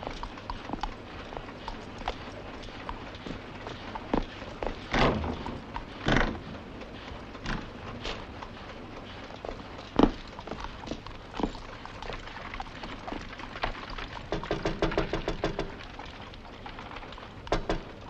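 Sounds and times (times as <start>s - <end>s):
horse hooves clopping: 0.0s - 18.0s
wooden carriage knocks: 14.3s - 15.8s, 17.5s - 18.0s.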